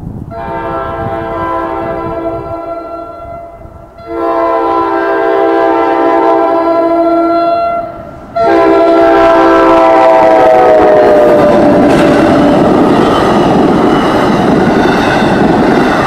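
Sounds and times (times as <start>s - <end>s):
locomotive air horn blasts: 0.3s - 11.8s.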